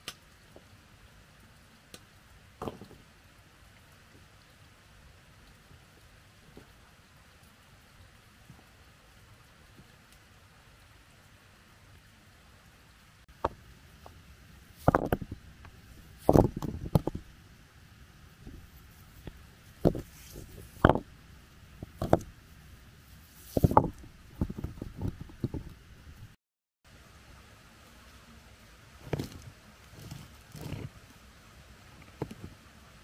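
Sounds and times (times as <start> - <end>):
hard objects knocking: 14.8 - 15.4, 16.2 - 17.2, 19.2 - 21.1, 21.8 - 22.3, 23.5 - 25.7.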